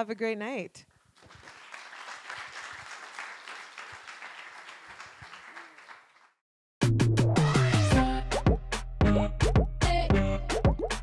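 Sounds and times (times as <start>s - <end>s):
audience applauding: 1.2s - 6.4s
music with percussive hits and bass: 6.8s - 11.0s.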